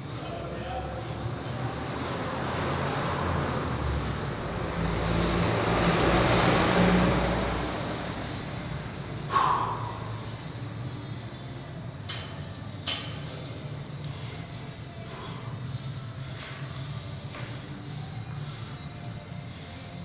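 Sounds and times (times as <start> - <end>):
vehicle passing by: 1.1 - 11.3.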